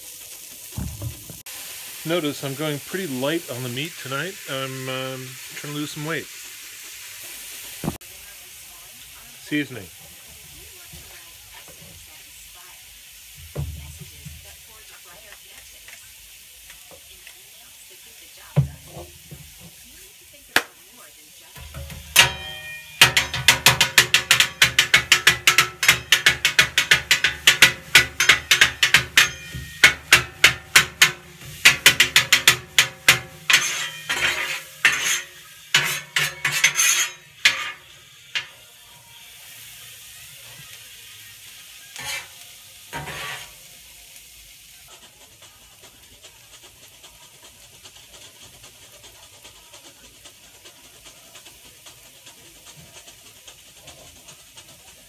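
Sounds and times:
faint griddle sizzle: 0:00.0 - 0:55.0
metal spatulas clanking on griddle: 0:21.6 - 0:38.7, 0:41.9 - 0:43.6.

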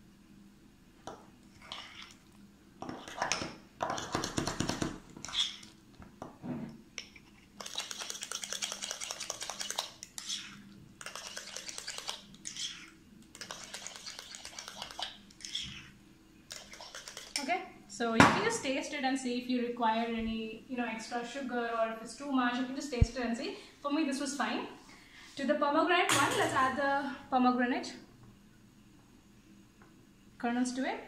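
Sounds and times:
metal spoon scraping glass bowl: 0:08.9 - 0:15.9.

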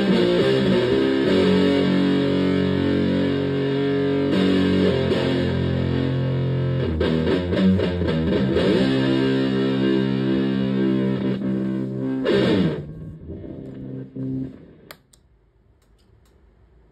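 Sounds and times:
fuzzed electric guitar lead: 0:00.0 - 0:15.1
pedal footswitch click: 0:14.9 - 0:16.1.

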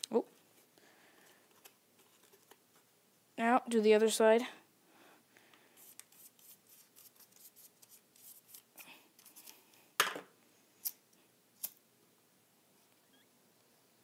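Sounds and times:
brush strokes on paper: 0:05.7 - 0:08.6.

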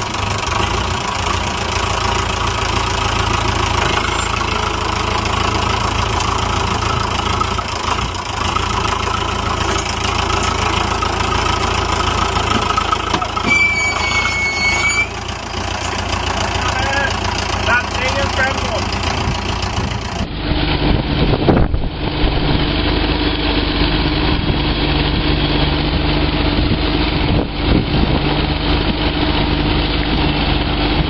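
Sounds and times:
wheels turning in mud: 0:00.0 - 0:20.9
tractor engine under load: 0:00.0 - 0:31.0
short high-pitched tone: 0:03.8 - 0:04.8, 0:13.1 - 0:15.2.

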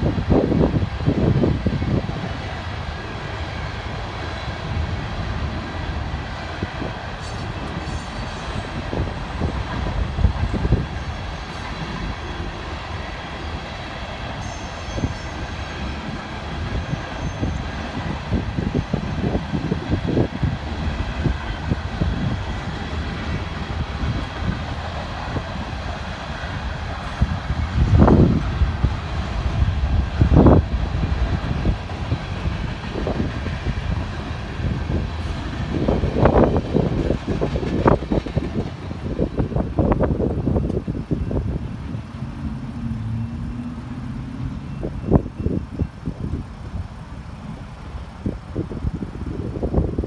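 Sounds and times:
clicks and knocks of rail cars: 0:00.0 - 0:50.0
train wheels rumbling on rail: 0:00.0 - 0:50.0
faint high squeals: 0:14.4 - 0:15.6, 0:16.8 - 0:17.7.

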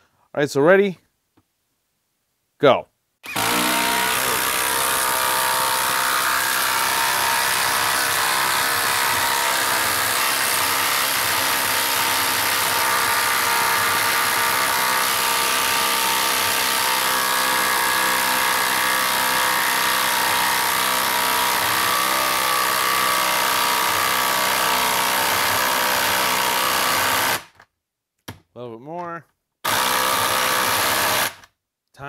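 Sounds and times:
impact driver hammering: 0:03.2 - 0:27.6, 0:29.6 - 0:31.5.

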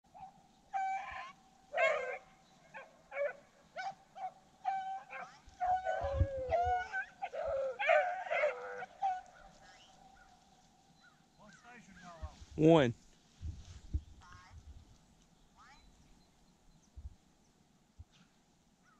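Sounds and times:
hounds baying: 0:00.1 - 0:11.3.

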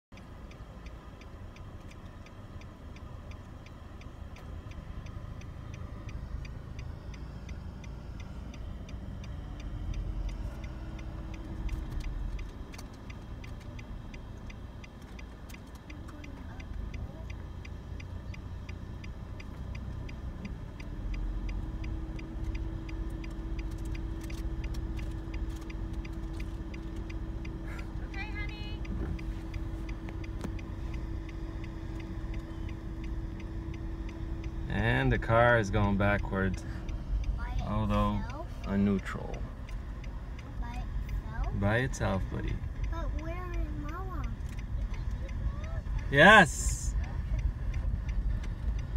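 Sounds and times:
car rolling low rumble: 0:00.1 - 0:48.9
regular ticking: 0:00.1 - 0:48.9.

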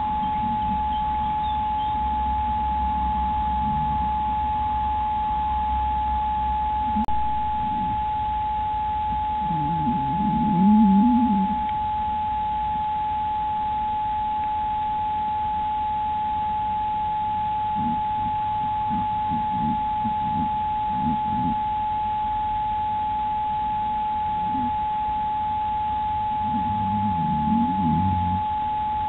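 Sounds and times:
high electronic tone: 0:00.0 - 0:04.2, 0:26.4 - 0:28.5.

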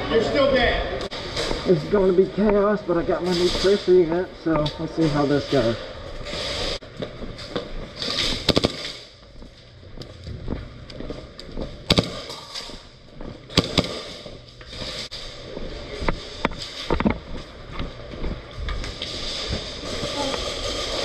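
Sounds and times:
airsoft guns firing: 0:08.2 - 0:09.1, 0:11.9 - 0:12.7, 0:13.5 - 0:14.4.

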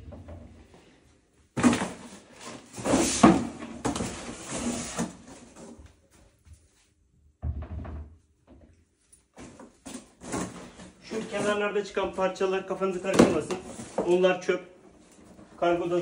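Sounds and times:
board scraping and rubbing: 0:02.5 - 0:05.4.

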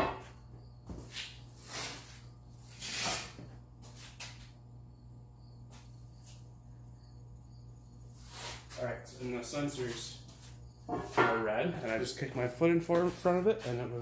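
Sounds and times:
steady low hum: 0:00.0 - 0:14.0
person scuffing and rustling: 0:00.8 - 0:04.6, 0:08.1 - 0:14.0.

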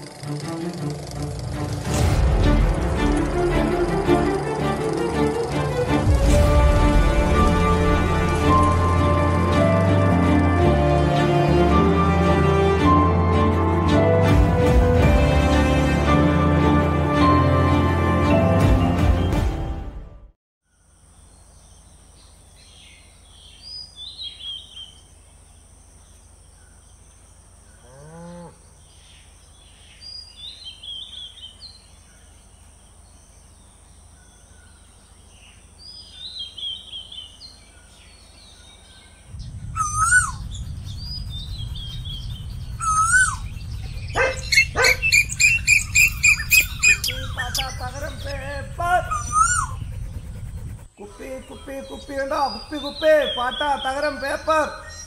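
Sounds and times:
birds chirping and calling: 0:26.1 - 0:55.0
low rumble: 0:39.2 - 0:51.0.

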